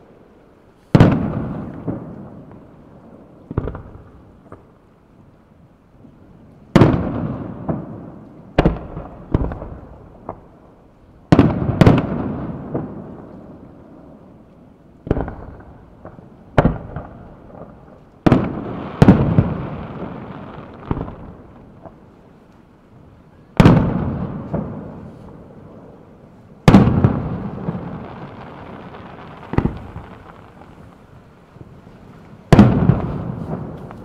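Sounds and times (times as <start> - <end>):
firework bangs with echo: 0.9 - 2.4, 3.5 - 4.6, 11.3 - 13.1, 18.3 - 21.4, 23.6 - 25.2, 26.6 - 30.9, 32.5 - 34.0.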